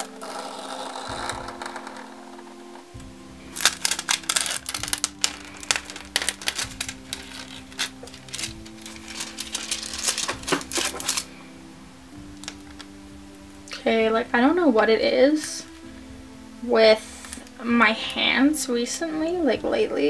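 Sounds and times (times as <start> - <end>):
background music with steady tones: 0.0 - 20.0
craft knife cutting plastic film: 3.5 - 11.3, 12.4 - 12.9.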